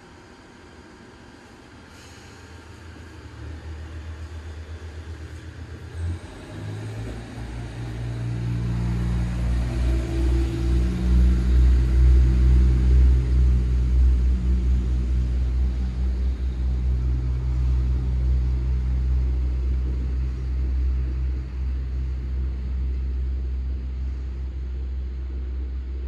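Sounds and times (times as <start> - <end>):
low engine rumble: 0.0 - 26.0.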